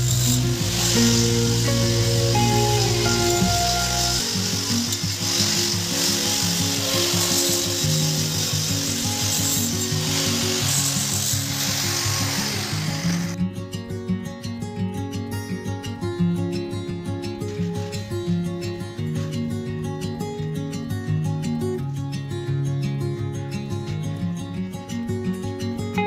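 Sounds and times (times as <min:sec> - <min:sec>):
angle grinder grinding stone: 0:00.0 - 0:13.4
background music: 0:00.0 - 0:13.4.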